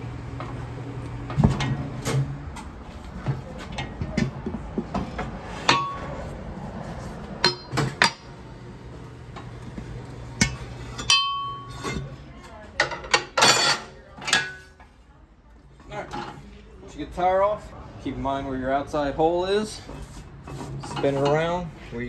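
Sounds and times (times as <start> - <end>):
metal tools clanking on wheel rim: 1.3 - 6.4, 7.3 - 8.4, 10.3 - 12.2, 12.8 - 14.9, 19.8 - 21.7.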